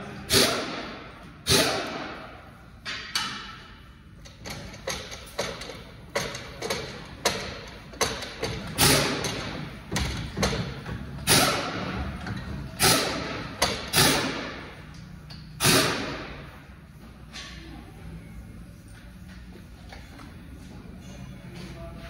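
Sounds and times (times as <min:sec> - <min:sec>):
tools knocking and banging: 0:02.8 - 0:14.6.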